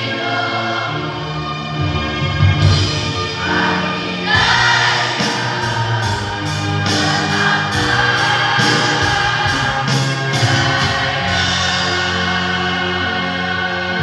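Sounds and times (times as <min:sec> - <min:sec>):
choir singing a hymn: 0:00.0 - 0:14.0
instrumental accompaniment: 0:00.0 - 0:14.0
steady beat: 0:04.3 - 0:12.8.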